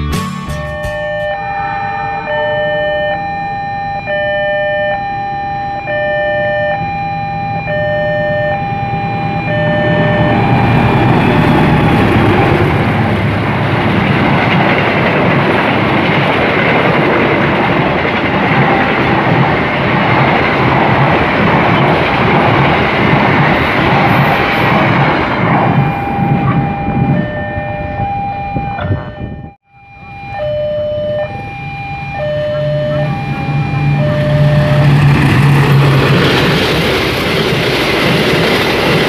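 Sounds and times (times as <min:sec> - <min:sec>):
electronic two-tone chime: 0:00.4 - 0:11.6
train passing close by: 0:00.5 - 0:29.4, 0:30.1 - 0:39.0.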